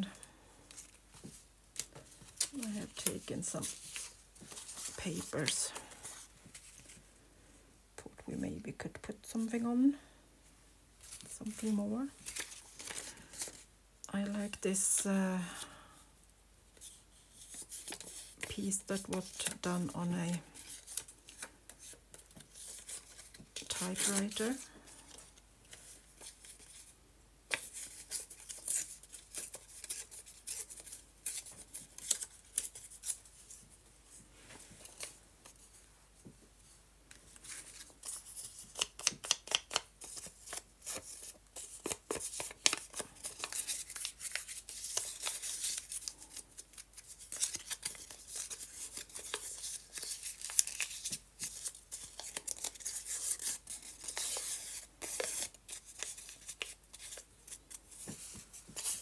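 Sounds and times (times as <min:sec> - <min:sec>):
paper rustling: 0:11.0 - 0:13.7, 0:37.4 - 0:59.0.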